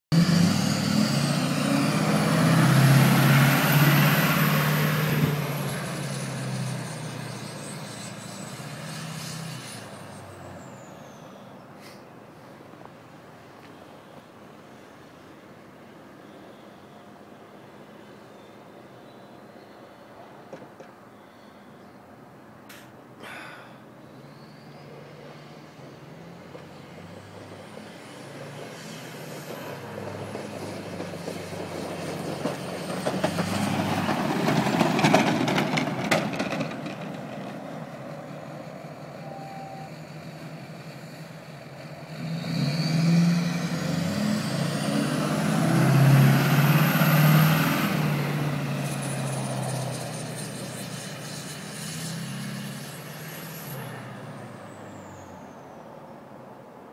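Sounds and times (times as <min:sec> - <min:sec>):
diesel truck driving past: 0:00.1 - 0:56.9
high turbo whistle: 0:39.0 - 0:40.4.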